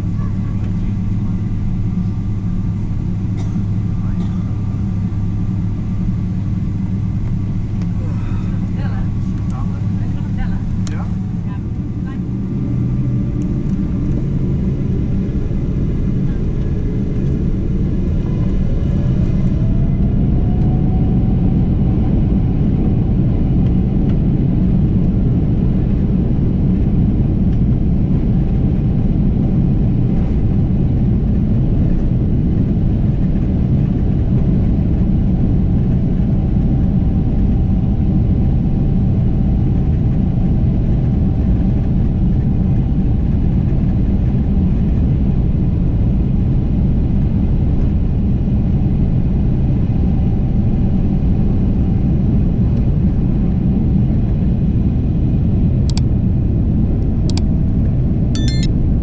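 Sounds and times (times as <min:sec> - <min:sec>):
heavy rumble: 0:00.0 - 0:25.7
jet engine whine: 0:00.0 - 0:52.4.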